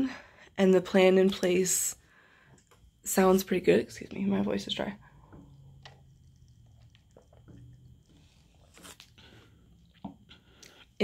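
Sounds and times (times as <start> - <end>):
person gulping and swallowing: 5.0 - 11.0.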